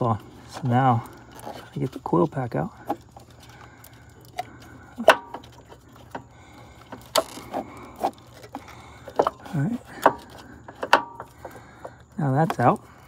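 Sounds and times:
plastic and metal clicks and knocks: 6.9s - 12.8s.

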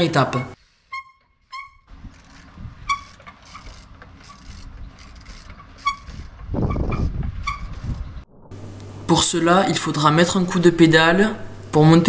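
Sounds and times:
bike brakes squeaking: 0.3s - 8.1s
low rumble: 6.3s - 9.1s.

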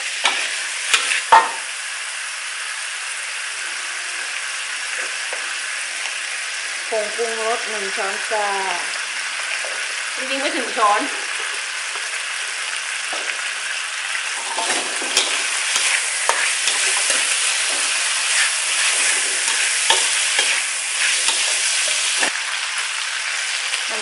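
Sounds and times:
pork sizzling in a wok: 0.0s - 24.0s
metal spatula scraping a pan: 0.1s - 1.6s, 14.4s - 22.3s.

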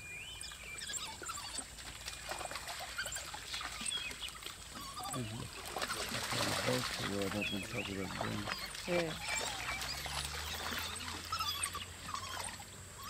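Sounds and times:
wild dogs twittering: 0.3s - 13.0s
low dog calls: 4.7s - 13.0s.

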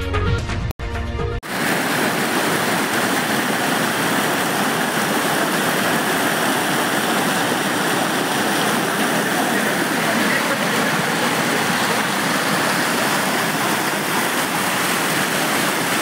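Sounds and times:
music: 0.0s - 1.4s
floodwater rushing: 1.4s - 16.0s.

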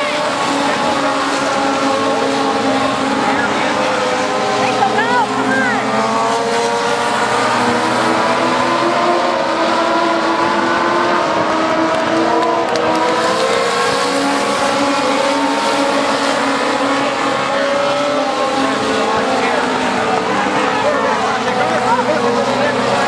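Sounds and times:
race car engines revving high: 0.0s - 23.0s.

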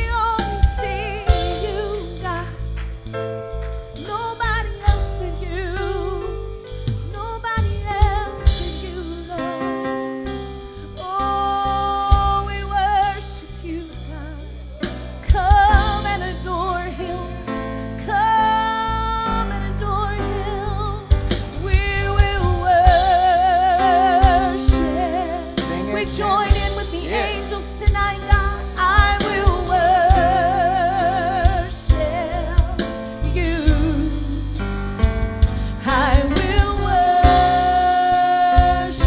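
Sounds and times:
keyboard guitars and bass: 0.0s - 39.0s
person singing with vibrato: 21.6s - 34.6s, 35.6s - 39.0s
drum hits: 35.0s - 37.8s.

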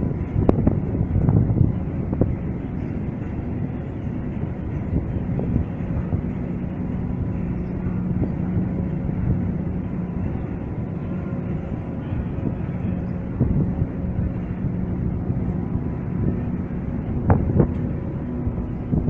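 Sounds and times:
machinery humming and rumbling: 0.0s - 19.0s.

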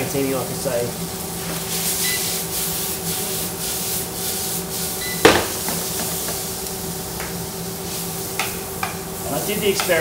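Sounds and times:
sharp knock: 5.2s - 6.0s.

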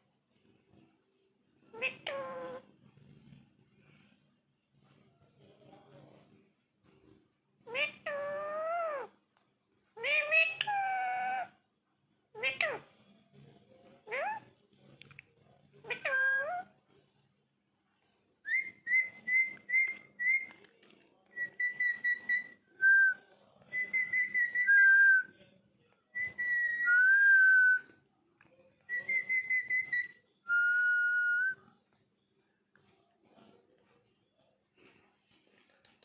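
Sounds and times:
parakeet whistling: 18.5s - 20.5s, 21.3s - 22.6s, 23.7s - 25.3s, 26.2s - 27.9s, 28.9s - 31.6s.

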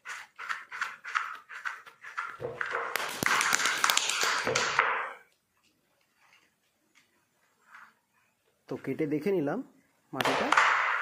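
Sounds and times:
clay rubbing on stone: 0.0s - 4.7s, 6.0s - 8.4s
clay pressing strokes: 0.0s - 8.6s.

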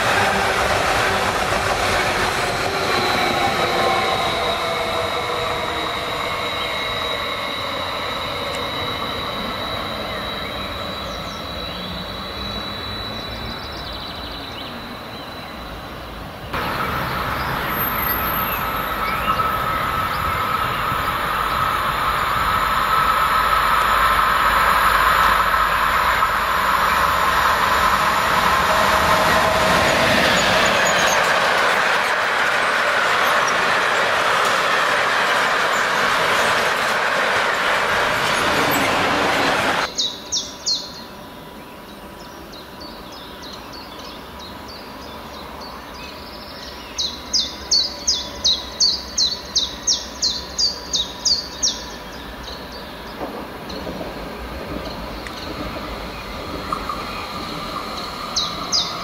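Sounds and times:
train wheels rumbling on rail: 0.0s - 41.3s, 42.4s - 59.0s
bird chirping: 39.8s - 59.0s.

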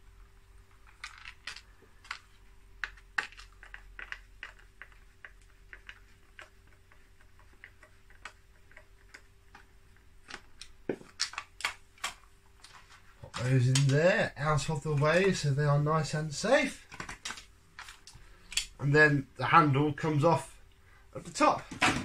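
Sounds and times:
plastic parts handled: 0.6s - 14.0s, 16.8s - 18.7s.

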